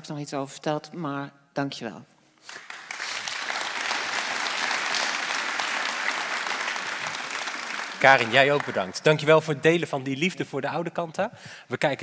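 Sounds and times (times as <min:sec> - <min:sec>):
audience applauding in a hall: 0:02.4 - 0:09.6.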